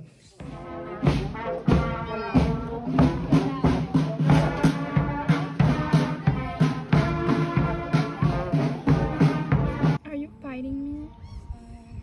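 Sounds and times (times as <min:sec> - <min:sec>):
marching brass band: 0:00.4 - 0:10.0
steady drum beat: 0:00.4 - 0:10.0.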